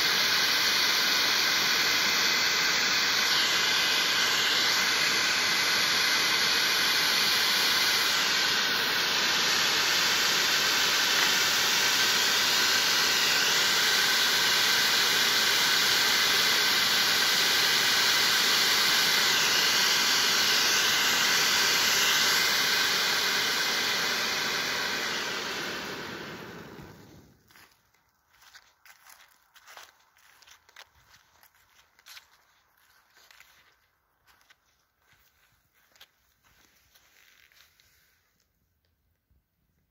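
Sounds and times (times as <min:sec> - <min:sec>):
firework fountain hissing: 0:00.0 - 0:27.8.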